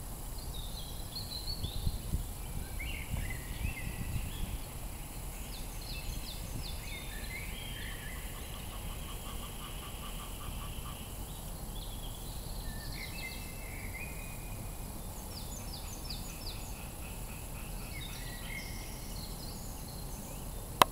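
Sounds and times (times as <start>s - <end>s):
songbirds calling: 0.0s - 20.9s.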